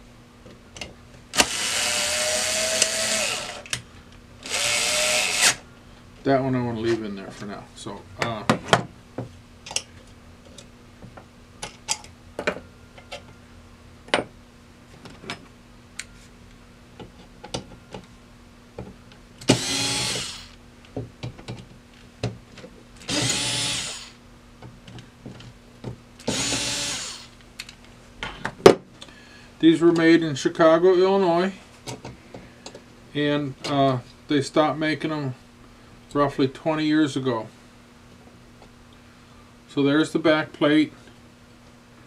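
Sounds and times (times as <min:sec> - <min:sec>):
electric screwdriver running: 0:01.4 - 0:03.7, 0:04.4 - 0:05.6, 0:19.5 - 0:20.6, 0:23.1 - 0:24.2, 0:26.2 - 0:27.4.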